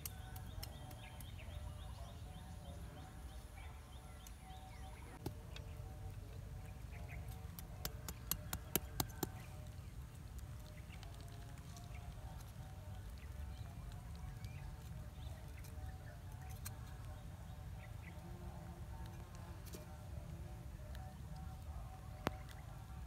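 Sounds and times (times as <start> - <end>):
faint bird chirps: 0.0 - 7.6
low outdoor rumble: 0.0 - 23.0.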